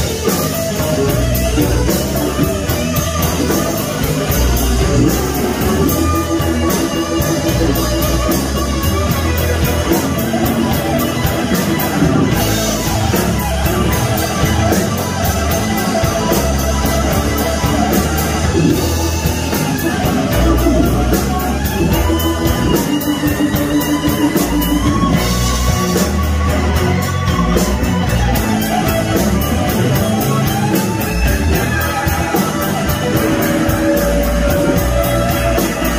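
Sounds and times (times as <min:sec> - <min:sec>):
electric bass: 0:00.0 - 0:35.9
electric guitar lead: 0:00.0 - 0:35.9
steady drum beat: 0:00.0 - 0:35.9.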